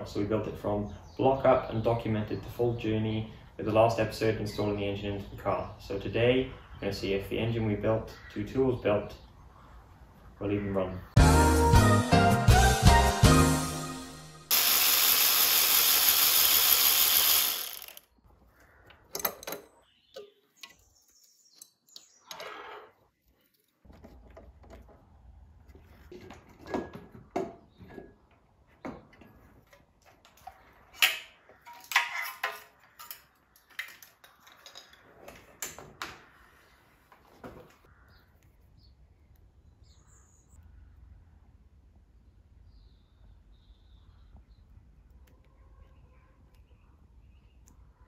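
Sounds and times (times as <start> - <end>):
loud steady hiss: 14.5 - 18.0
small clicks and rattles of handling parts: 29.1 - 35.9.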